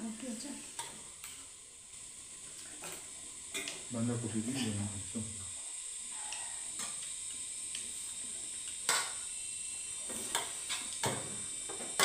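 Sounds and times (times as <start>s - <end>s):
steady high hiss: 0.0s - 12.0s.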